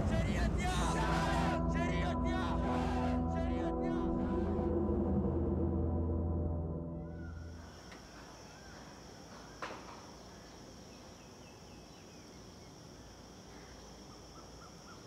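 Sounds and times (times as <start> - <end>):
insect chorus drone: 0.0 - 15.0.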